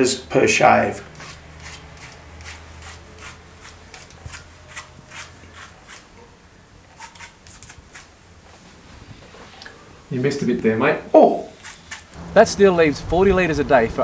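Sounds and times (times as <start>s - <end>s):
razor scraping stubble: 0.9s - 6.2s, 6.9s - 9.7s, 11.5s - 12.2s.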